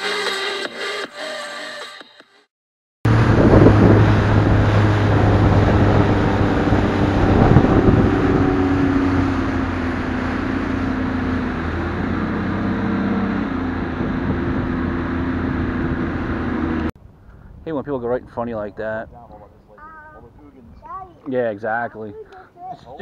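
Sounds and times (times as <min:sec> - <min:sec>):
outboard motor running: 0:03.1 - 0:16.9
water rushing: 0:03.1 - 0:16.9
wind rushing: 0:03.1 - 0:18.4.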